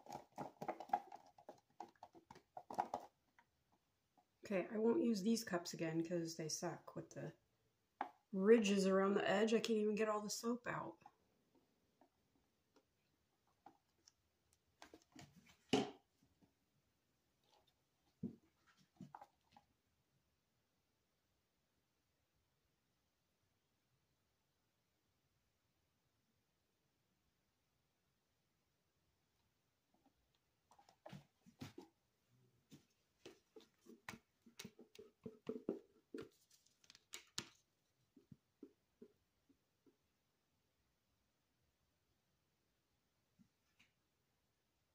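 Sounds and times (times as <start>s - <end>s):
plastic cups tapping and clicking: 0.0s - 3.5s, 32.7s - 37.6s.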